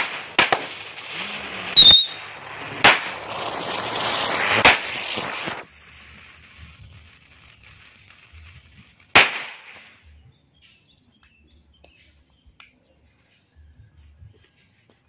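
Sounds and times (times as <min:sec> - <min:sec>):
firecracker bang: 0:00.0 - 0:10.0.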